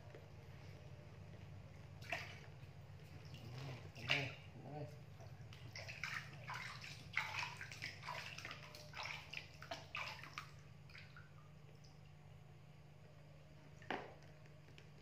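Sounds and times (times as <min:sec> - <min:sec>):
steady low hum: 0:00.0 - 0:15.0
water splashing in a tub: 0:01.9 - 0:12.3.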